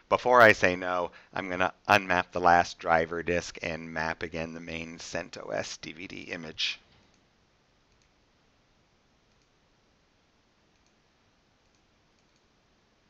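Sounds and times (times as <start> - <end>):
faint computer mouse clicks: 7.9 - 8.2, 9.3 - 9.6, 10.7 - 11.0, 11.6 - 12.5.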